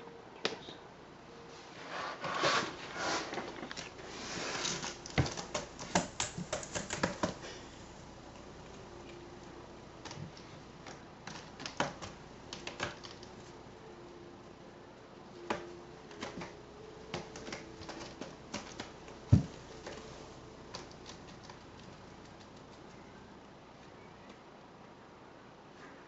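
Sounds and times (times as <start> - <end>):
cat scratching rope post: 1.9 - 13.7, 15.4 - 23.0.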